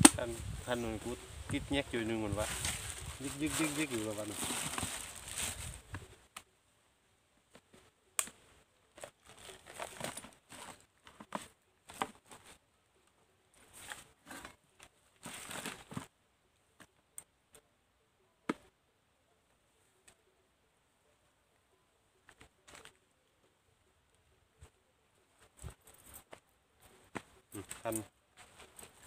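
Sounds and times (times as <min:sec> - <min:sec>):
crinkling and rustling: 0:00.8 - 0:06.1, 0:08.9 - 0:12.6, 0:13.5 - 0:16.2, 0:22.2 - 0:23.1, 0:25.3 - 0:29.0.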